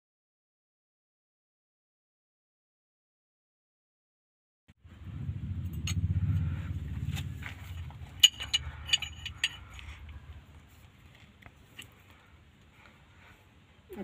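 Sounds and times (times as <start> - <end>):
low rumble: 4.8 - 11.4
spanner clinking on metal nut: 7.6 - 9.8.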